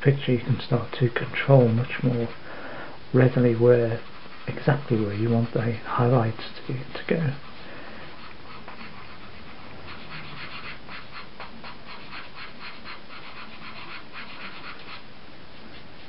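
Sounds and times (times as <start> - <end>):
pastel scratching on paper: 1.2 - 2.4, 3.3 - 5.8, 7.3 - 16.0.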